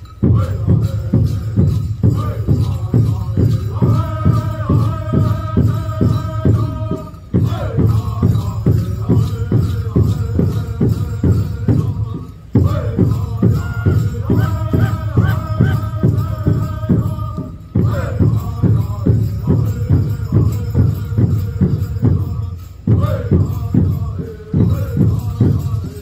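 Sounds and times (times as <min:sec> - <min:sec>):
steady drumbeat: 0:00.0 - 0:26.0
men's chorus chanting: 0:00.2 - 0:26.0.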